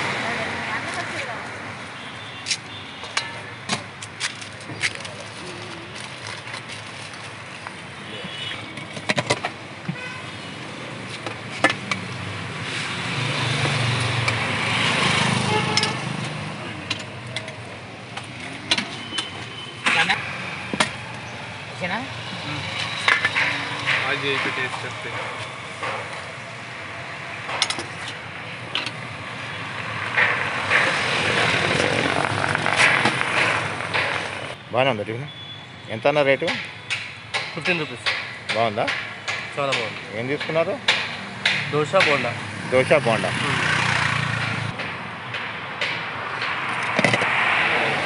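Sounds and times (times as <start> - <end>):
street traffic: 0.0 - 48.0
vehicle passing on road: 12.0 - 19.0, 19.8 - 34.6, 40.6 - 48.0.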